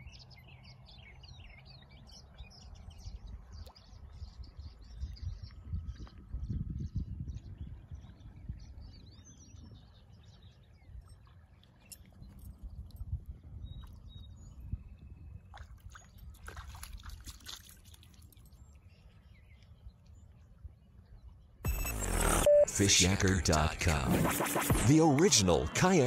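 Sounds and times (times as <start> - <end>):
dog paws splashing in shallows: 15.5 - 18.6.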